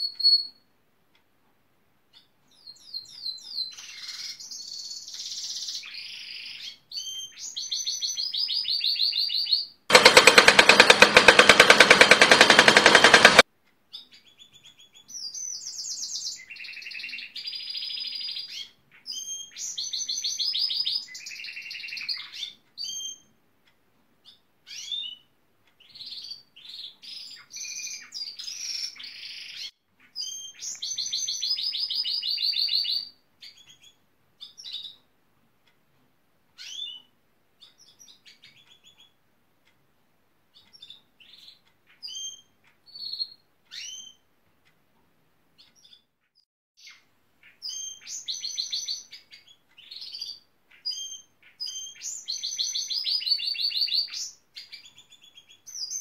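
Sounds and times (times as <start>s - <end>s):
bird chirps: 24.2s - 35.0s, 46.8s - 56.0s.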